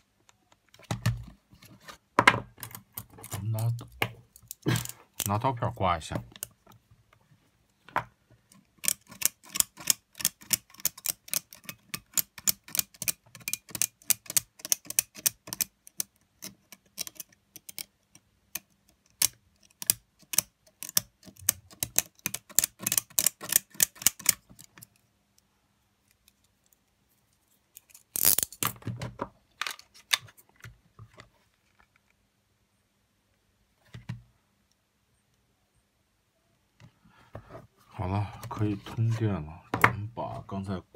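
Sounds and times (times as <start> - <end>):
scraping or handling noise: 0.6 - 6.9, 26.0 - 32.2, 37.1 - 40.5.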